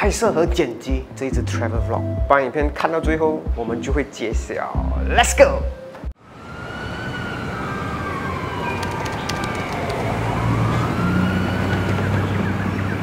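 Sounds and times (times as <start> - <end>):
slow siren-like wail: 6.2 - 13.0.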